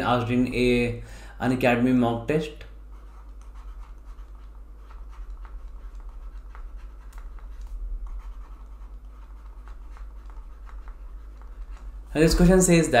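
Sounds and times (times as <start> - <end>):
steady low hum: 0.0 - 13.0
stylus scratching on pen tablet: 2.8 - 13.0.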